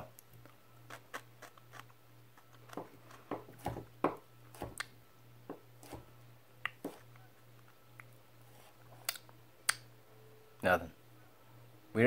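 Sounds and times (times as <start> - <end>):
low steady hum: 0.0 - 12.0
person chewing crunchily: 0.8 - 3.7.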